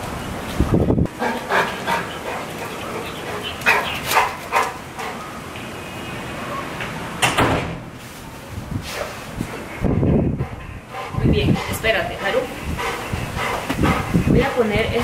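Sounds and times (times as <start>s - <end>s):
dog barking: 3.6s - 4.8s.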